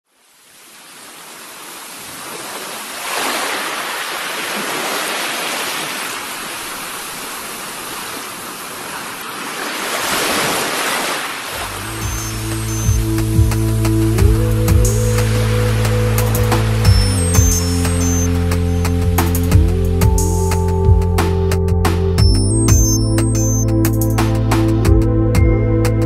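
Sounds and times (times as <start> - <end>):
wind: 0.0 - 26.0
waves rushing and splashing: 0.2 - 19.4.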